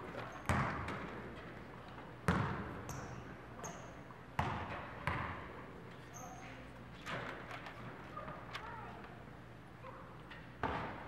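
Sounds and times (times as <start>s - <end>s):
basketball bouncing on court: 0.4s - 1.2s, 2.2s - 3.8s, 4.4s - 5.5s, 10.6s - 11.0s.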